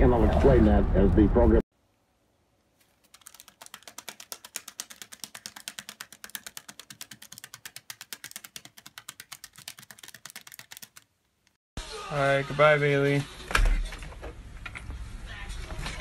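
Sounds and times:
parrot feet tapping on newspaper: 2.8s - 11.1s.

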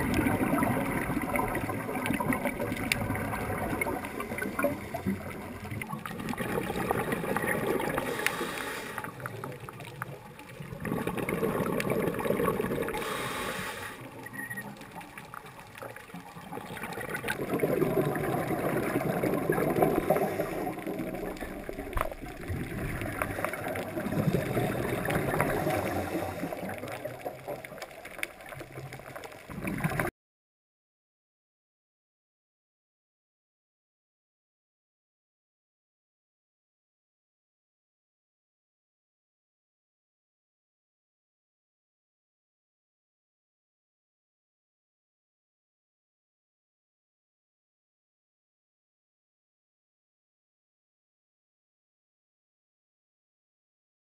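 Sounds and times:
scuba regulator bubbles gurgling: 0.0s - 30.1s.

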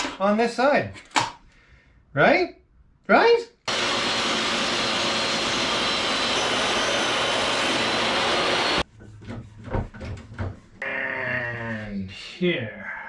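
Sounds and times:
table saw cutting wood: 3.7s - 8.8s.

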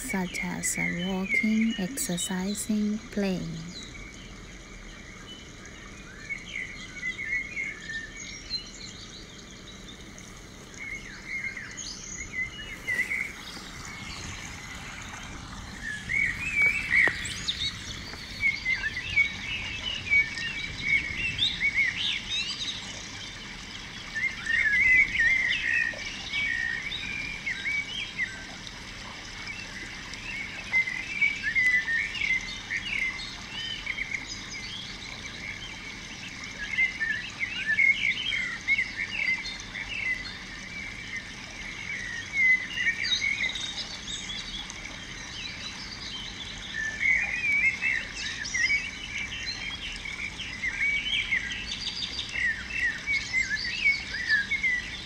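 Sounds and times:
birds chirping: 0.0s - 28.2s.

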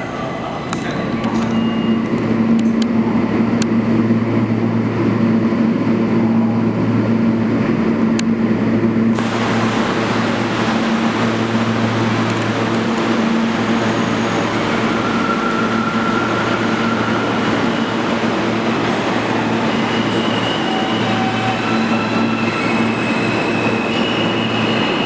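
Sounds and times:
subway train hum: 0.0s - 25.0s
hissy train noise: 9.1s - 25.0s.

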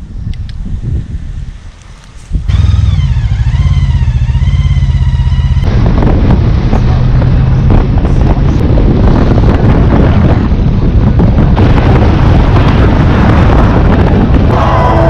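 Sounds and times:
wind buffeting microphone: 0.0s - 15.0s
wavering high whine: 2.0s - 8.6s, 12.8s - 15.0s
motorcycle engine running: 2.2s - 15.0s.

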